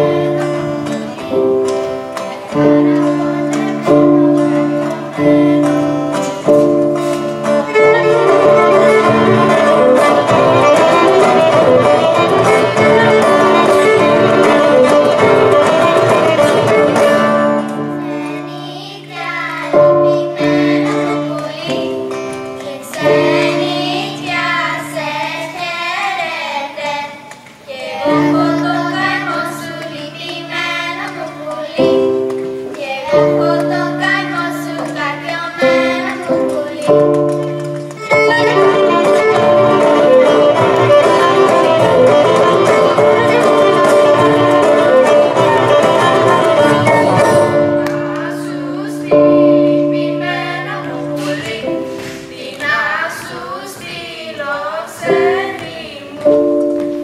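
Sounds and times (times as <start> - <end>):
violin-led folk music: 0.0 - 18.6, 33.3 - 52.3
children singing: 0.0 - 56.6.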